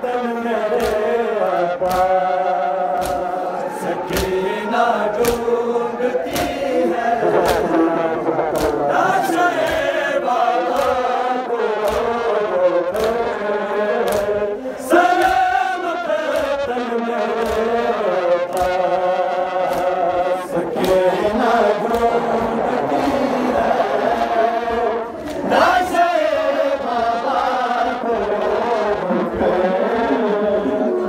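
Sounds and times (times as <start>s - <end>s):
men chanting a lament: 0.0s - 31.0s
sharp beat: 4.1s - 26.5s.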